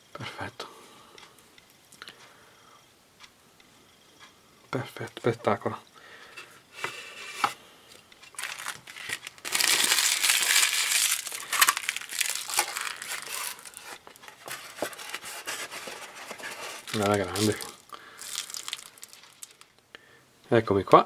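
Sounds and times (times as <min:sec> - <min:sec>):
plastic parts clicking: 0:08.2 - 0:19.7
plastic film crinkling: 0:08.2 - 0:19.8.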